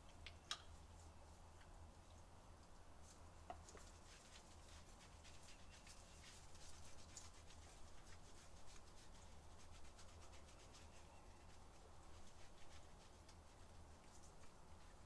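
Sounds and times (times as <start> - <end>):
hands lathering dog's coat: 3.0 - 15.0.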